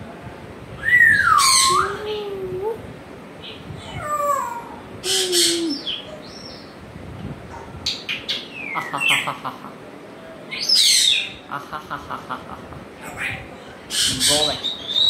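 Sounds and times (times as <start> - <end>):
parrot whistles and calls: 0.8 - 2.1.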